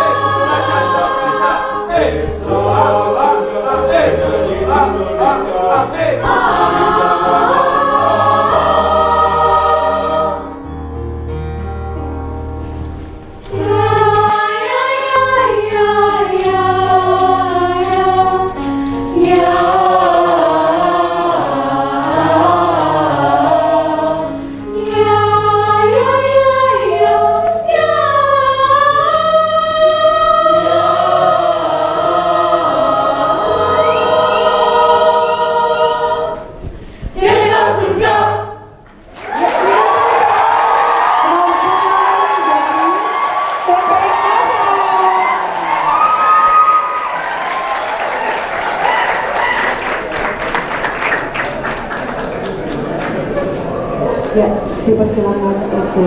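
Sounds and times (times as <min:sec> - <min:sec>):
mixed choir singing in parts: 0:00.0 - 0:10.8, 0:13.4 - 0:54.2.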